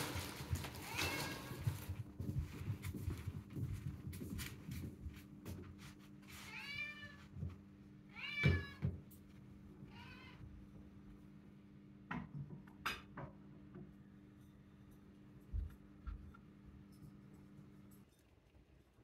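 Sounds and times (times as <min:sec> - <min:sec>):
cat meowing: 0:00.7 - 0:01.6, 0:06.5 - 0:07.3, 0:08.1 - 0:08.9, 0:09.8 - 0:10.5.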